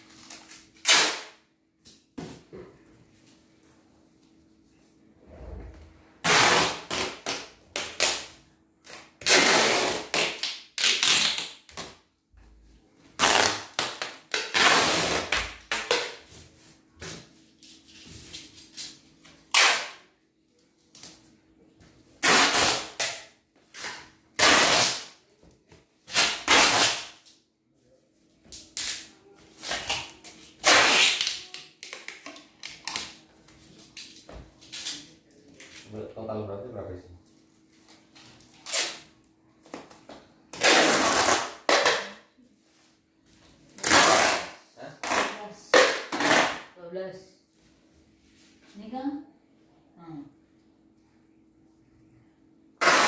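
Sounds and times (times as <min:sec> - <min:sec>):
packing tape ripping off roll: 0:00.1 - 0:02.0, 0:06.2 - 0:12.0, 0:13.2 - 0:16.2, 0:19.5 - 0:20.1, 0:22.2 - 0:25.2, 0:26.1 - 0:27.4, 0:28.6 - 0:33.2, 0:38.5 - 0:39.1, 0:40.5 - 0:42.2, 0:43.8 - 0:46.7, 0:52.8 - 0:53.0.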